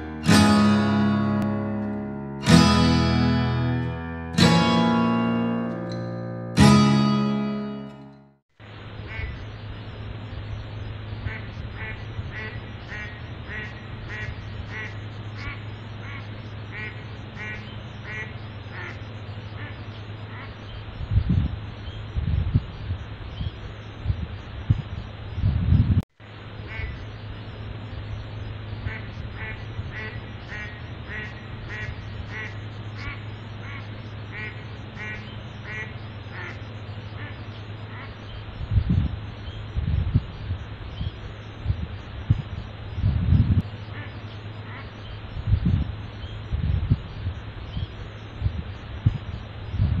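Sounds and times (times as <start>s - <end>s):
low hum: 0.0s - 20.4s
duck quacking: 9.1s - 9.4s, 11.3s - 19.0s, 26.7s - 27.0s, 28.8s - 36.6s, 37.2s - 38.2s, 43.9s - 45.0s.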